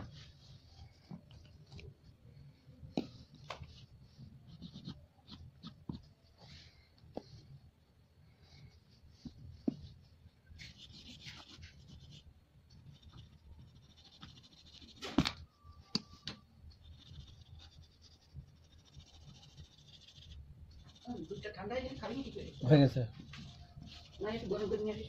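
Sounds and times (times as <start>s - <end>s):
crayon scratching on paper: 4.5s - 6.0s, 10.6s - 15.2s, 16.8s - 25.0s.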